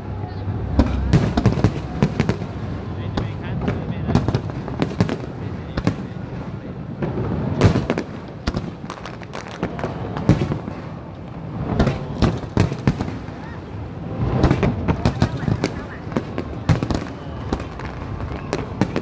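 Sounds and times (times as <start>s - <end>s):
low rumble: 0.0s - 3.1s
firework bangs and crackles: 0.0s - 19.0s.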